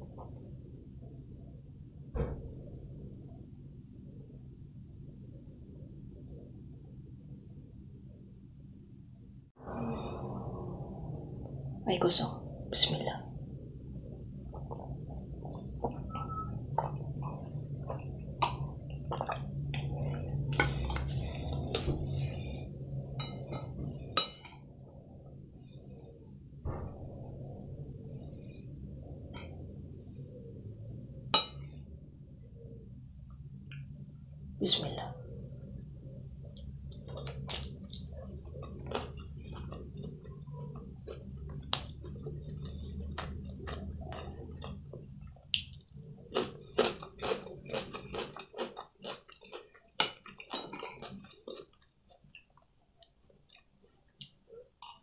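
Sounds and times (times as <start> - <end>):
low steady hum: 0.0 - 55.0
slurping and chewing: 14.5 - 24.1, 36.6 - 52.6.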